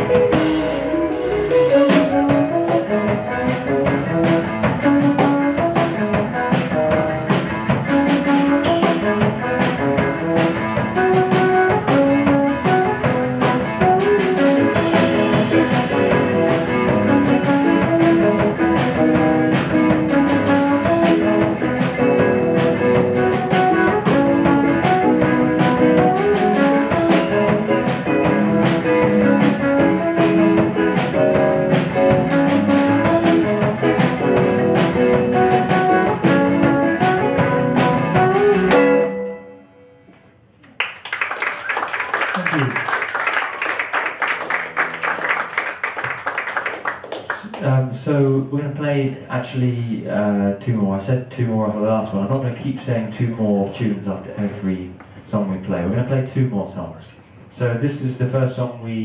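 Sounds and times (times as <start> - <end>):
drums keeping steady beat: 0.0 - 39.0
jazz band playing: 0.0 - 39.8, 41.8 - 47.1.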